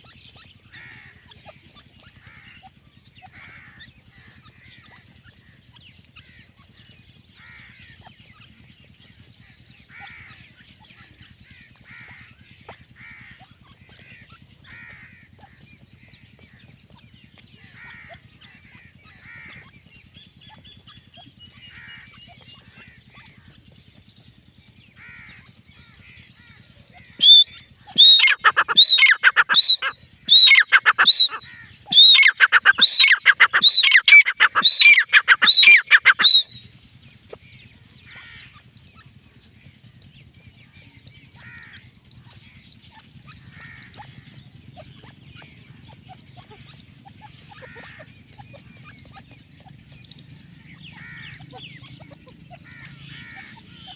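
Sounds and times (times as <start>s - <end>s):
loud ringing bird call: 0.0s - 53.9s
soft bird chirping: 26.5s - 53.9s.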